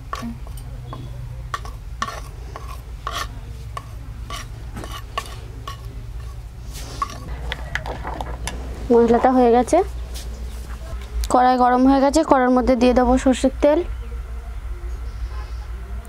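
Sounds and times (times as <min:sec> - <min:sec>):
metal spoon scraping a plate: 0:00.1 - 0:07.9.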